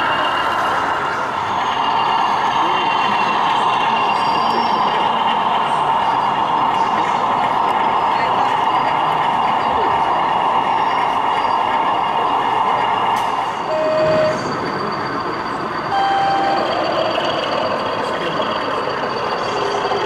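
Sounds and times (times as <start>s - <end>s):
exhibition hall hubbub: 0.0s - 20.0s
beeping tones: 13.7s - 17.9s.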